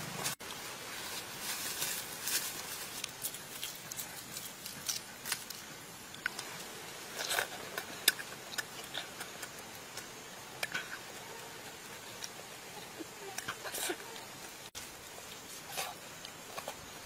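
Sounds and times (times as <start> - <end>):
biting and chewing: 3.0 - 12.6.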